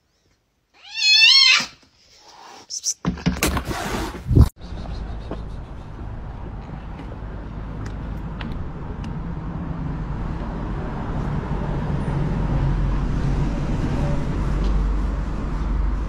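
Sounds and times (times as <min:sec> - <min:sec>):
road vehicles rumbling: 0:04.3 - 0:16.0.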